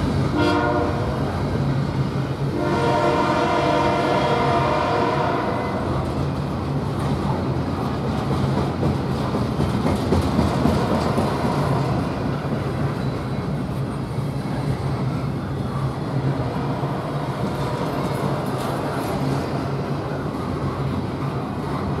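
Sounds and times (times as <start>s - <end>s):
train wheels rumbling on rail: 0.0s - 22.0s
wheels clacking over rail joints: 6.0s - 13.8s.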